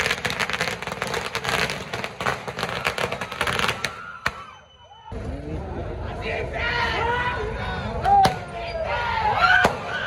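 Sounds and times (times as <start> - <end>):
firecrackers crackling: 0.0 - 4.6.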